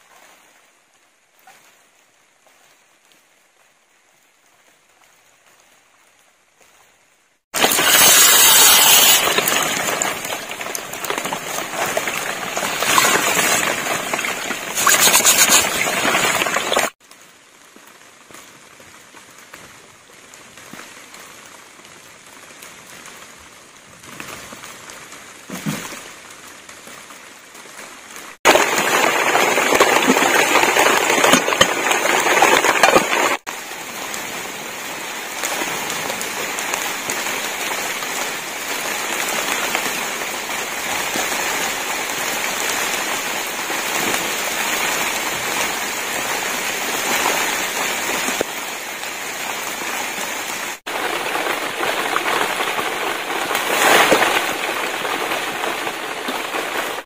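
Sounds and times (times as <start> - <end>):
rain on leaves and thatched roof: 0.0 - 57.0
rice poured into water: 7.6 - 10.8
water and grains splashing: 7.6 - 17.0, 28.4 - 34.1, 49.7 - 57.0.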